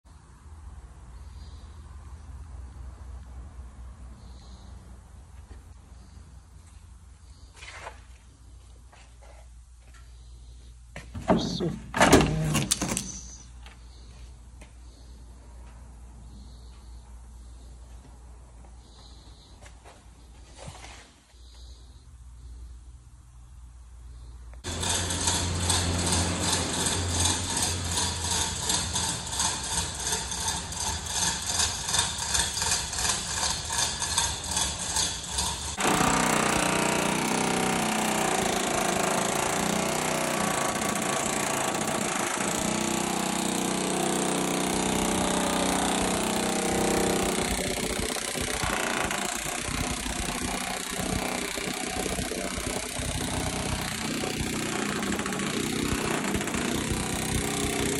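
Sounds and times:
air hammer rattling on sheet metal: 24.6s - 57.9s.

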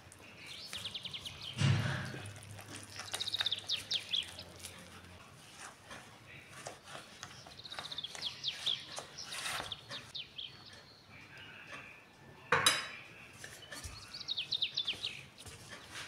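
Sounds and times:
spatula stirring dough in glass bowl: 2.1s - 10.9s, 13.4s - 16.0s.

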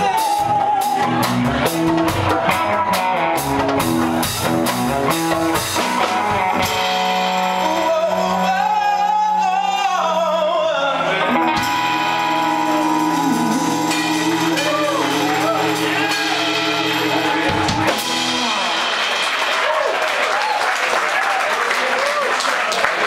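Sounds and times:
person singing with vibrato: 0.0s - 1.7s, 6.6s - 19.1s
electric guitar chords: 0.0s - 19.8s
drum hits: 13.2s - 19.9s.

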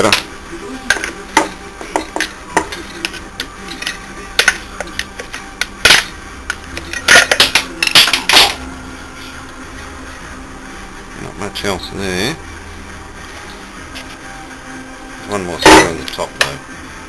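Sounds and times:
tools clattering on workbench: 0.9s - 6.1s, 6.8s - 8.6s.

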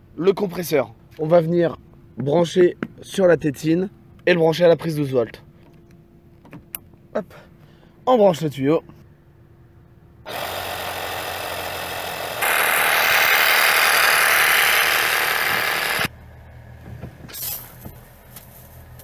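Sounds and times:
air compressor running: 10.3s - 16.1s.

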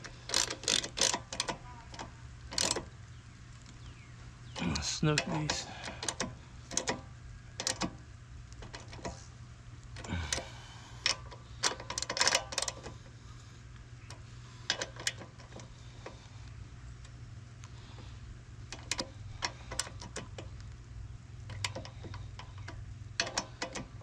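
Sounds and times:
socket ratchet clicking: 0.0s - 2.9s, 5.2s - 8.0s, 10.0s - 12.9s, 18.7s - 20.5s, 21.4s - 24.0s.

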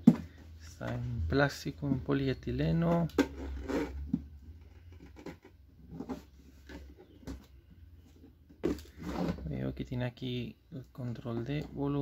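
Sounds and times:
plastic speaker scrapes and knocks: 2.8s - 9.7s.

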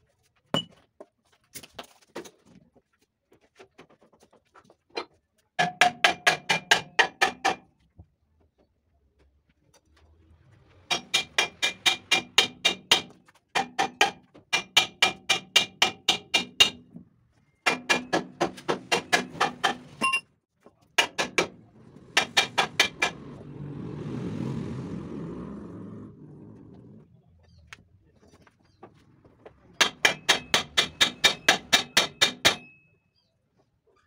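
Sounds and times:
hammer striking metal: 10.9s - 16.8s, 17.7s - 20.0s, 21.0s - 21.6s, 22.2s - 23.2s, 29.8s - 32.8s.

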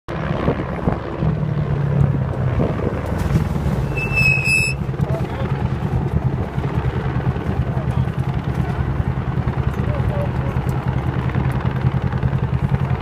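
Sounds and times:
utility vehicle engine running: 0.3s - 13.0s
high-pitched brake squeal: 3.8s - 4.8s.

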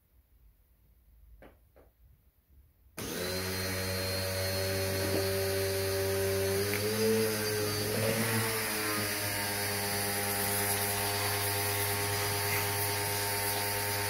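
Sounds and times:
pressure washer running: 3.0s - 14.0s.

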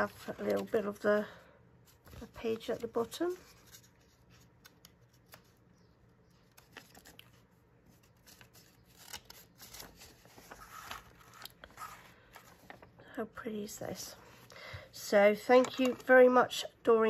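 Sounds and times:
book pages rustling and clicking: 0.0s - 1.0s, 1.8s - 13.0s, 15.5s - 16.2s.

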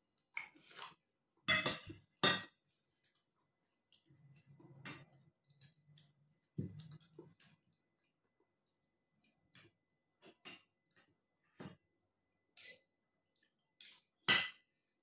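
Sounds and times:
cutlery clinking on dishes: 1.5s - 2.6s, 12.6s - 12.9s.

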